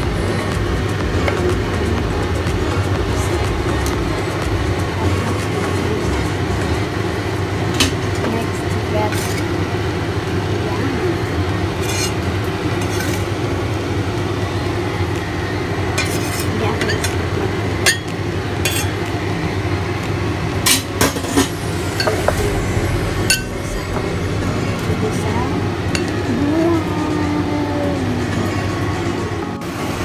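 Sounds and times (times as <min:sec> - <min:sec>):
steady background hum: 0:00.0 - 0:30.0
knife scraping on wooden board: 0:11.8 - 0:12.2.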